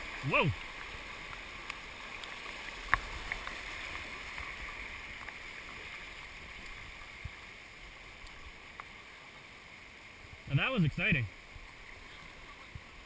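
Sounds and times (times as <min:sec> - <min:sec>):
creek rapids rushing: 0:00.0 - 0:13.0
faint clicks: 0:01.2 - 0:05.4.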